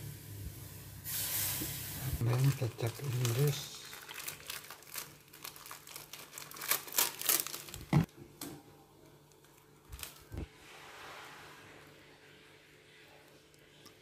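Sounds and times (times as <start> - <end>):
plastic bottles crackling and clicking: 2.2 - 8.1.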